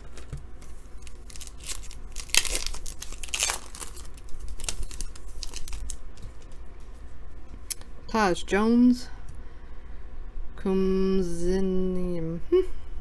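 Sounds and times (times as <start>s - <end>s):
wrapper tearing and crinkling: 1.0s - 6.6s.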